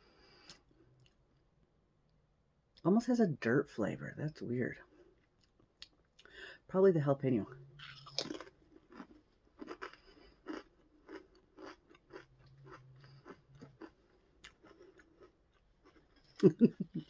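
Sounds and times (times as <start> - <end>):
person chewing crunchy chips: 7.8 - 17.0.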